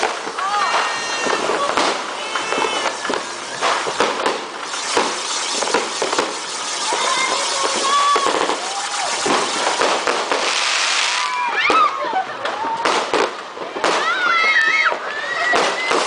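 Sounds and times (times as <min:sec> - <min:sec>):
firework hissing: 0:00.0 - 0:11.9
crackles and pops: 0:00.0 - 0:12.6.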